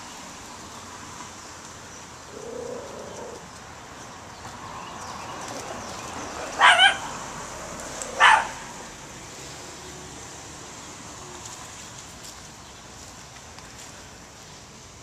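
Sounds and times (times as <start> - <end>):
small dog barking: 6.6 - 7.1, 8.2 - 8.7.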